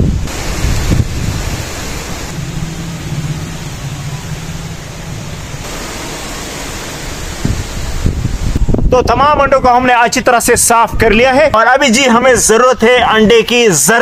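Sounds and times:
strong wind on microphone: 0.0 - 13.4.

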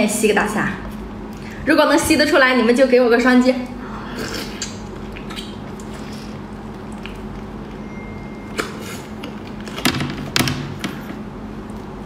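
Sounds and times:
steady low hum: 0.0 - 12.0
mouth sucking: 3.8 - 6.5.

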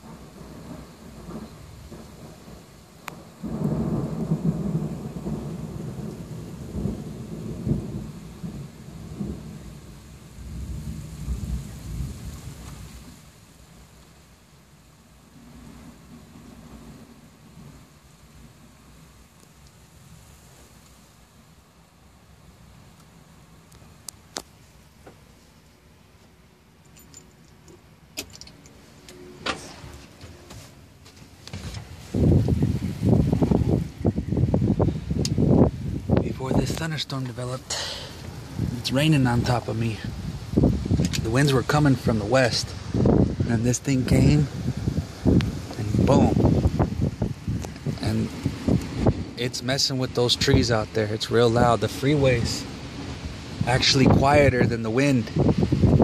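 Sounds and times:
thunder rumbling: 0.0 - 13.8, 15.2 - 19.4, 31.5 - 56.0
rain falling on a truck: 0.0 - 56.0
light jingling rattle: 26.8 - 28.8.

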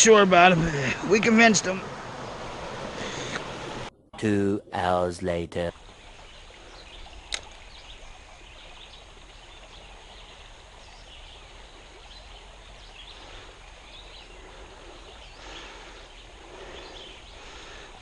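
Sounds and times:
creek running over stones: 0.0 - 3.9, 4.8 - 18.0
faint bird chirps: 5.9 - 18.0
sharp click: 7.3 - 7.6.

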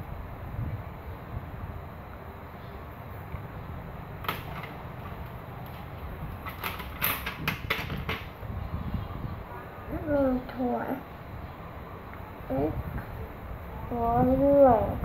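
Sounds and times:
pencils clicking and clattering: 4.2 - 8.4.

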